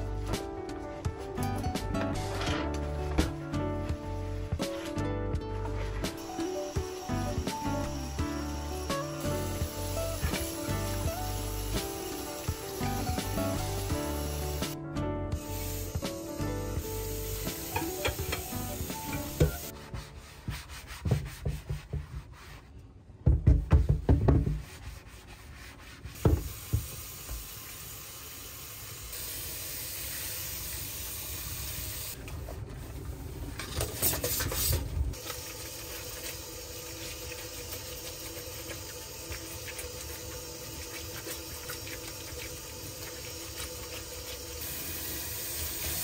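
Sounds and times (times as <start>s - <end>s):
knocks: 23.2s - 24.7s.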